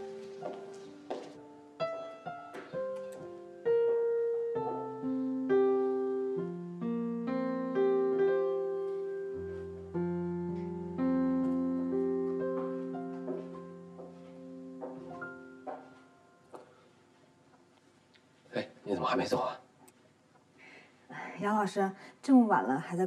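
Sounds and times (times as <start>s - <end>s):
slow solo piano melody: 0.0s - 16.9s.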